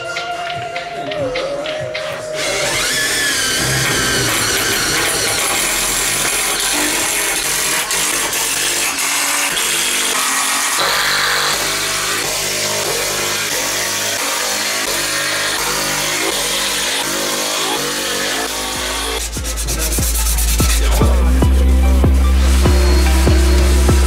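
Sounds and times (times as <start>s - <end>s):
background music with beat: 0.0s - 8.7s, 18.7s - 24.0s.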